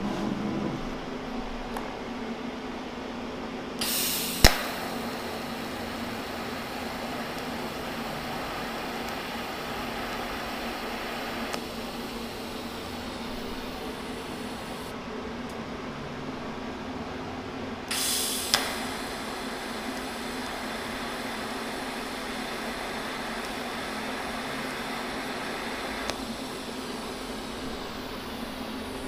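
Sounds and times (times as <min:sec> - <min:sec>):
sharp click: 0:03.8 - 0:05.0, 0:17.9 - 0:19.0
arc striking crackle: 0:03.8 - 0:14.9, 0:17.9 - 0:29.0
welding arc hissing: 0:03.8 - 0:14.9, 0:17.9 - 0:29.0.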